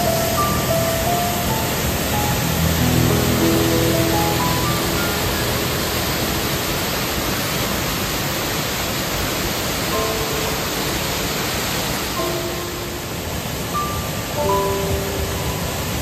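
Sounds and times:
soft background music: 0.0 - 8.4, 9.8 - 16.0
waterfall pouring into pool: 0.0 - 12.4.

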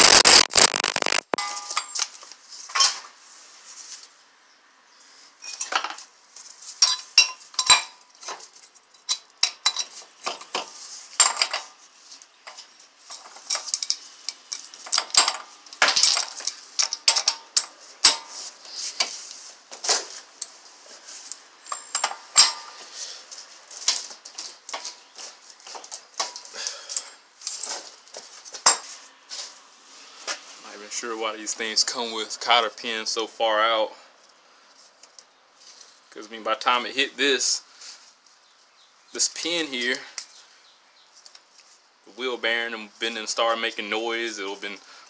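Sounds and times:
metallic ring: 1.4 - 2.0, 21.6 - 22.7.

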